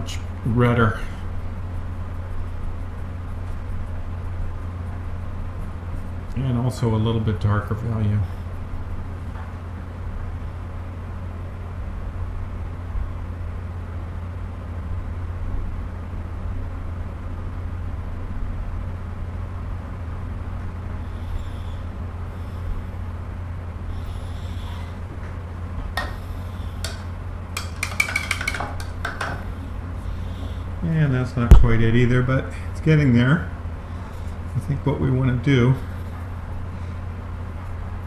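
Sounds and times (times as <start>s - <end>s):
low background hum: 0.0s - 38.0s
brush clinking on paint jars: 27.6s - 29.4s.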